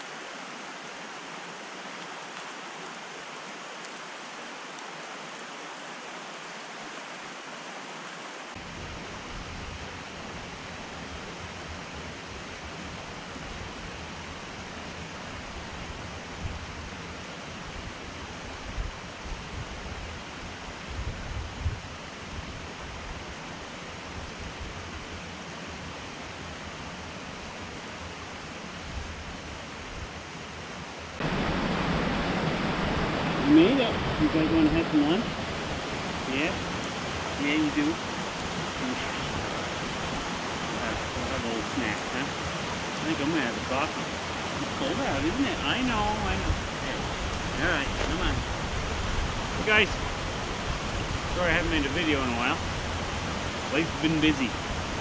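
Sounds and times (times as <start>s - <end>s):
creek running over rocks: 0.0s - 55.0s
rumbling bumps on microphone: 46.5s - 49.2s.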